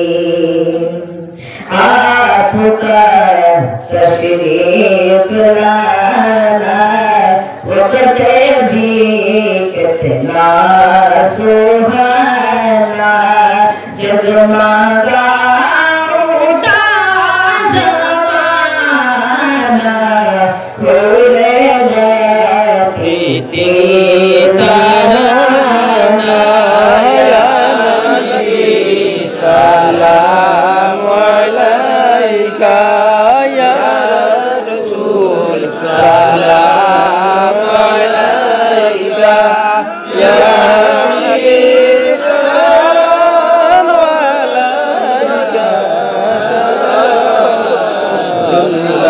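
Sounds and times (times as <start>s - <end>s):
boy singing into a microphone: 0.0s - 49.0s
man's voice: 0.0s - 49.0s.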